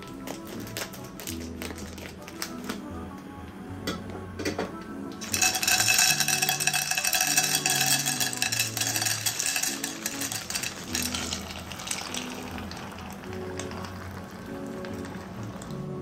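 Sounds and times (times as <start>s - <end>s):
dry pasta pouring into metal pot: 5.2s - 16.0s.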